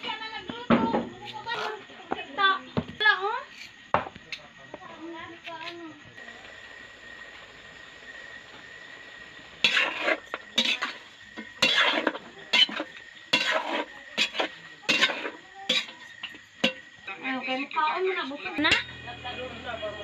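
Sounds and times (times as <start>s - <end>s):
metal ladle scraping a pot: 9.6s - 16.8s.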